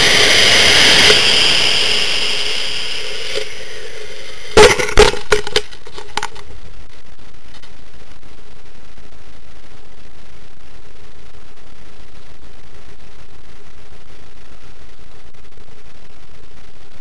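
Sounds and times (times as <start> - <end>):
faint hiss of air: 0.0 - 4.6
rocket motor rushing hiss: 0.0 - 6.4
sharp knocks and pops: 4.6 - 6.5.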